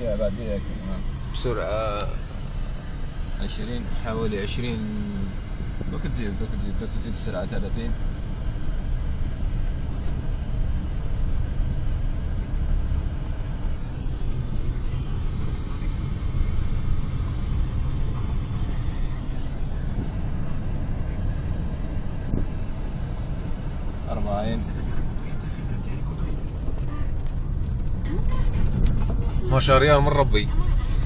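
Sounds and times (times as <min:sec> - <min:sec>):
tyres rumbling on dirt road: 0:00.0 - 0:31.0
wind: 0:00.0 - 0:31.0.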